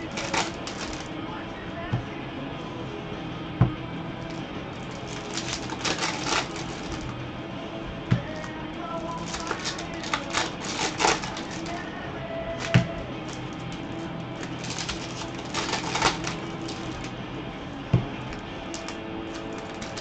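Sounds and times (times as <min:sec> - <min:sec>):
cards flicking: 0:00.0 - 0:01.1, 0:08.1 - 0:11.9, 0:12.6 - 0:17.2, 0:18.3 - 0:20.0
card stack knocking on table: 0:12.6 - 0:13.0.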